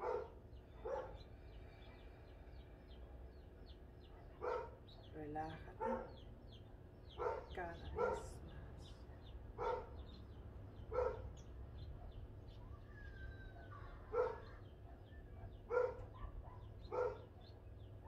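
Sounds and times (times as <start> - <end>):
dog barking: 0.0 - 1.2, 4.0 - 5.1, 5.7 - 6.2, 7.1 - 8.5, 9.1 - 10.1, 10.9 - 12.3, 13.4 - 17.7
small birds chirping: 0.0 - 18.0.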